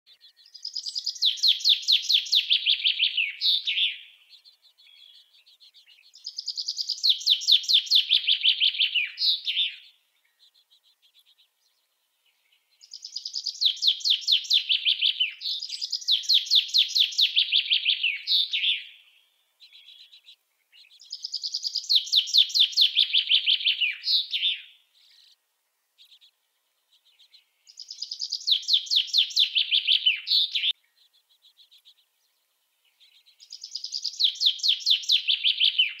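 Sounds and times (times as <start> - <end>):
chaffinch singing: 0.1 - 36.0.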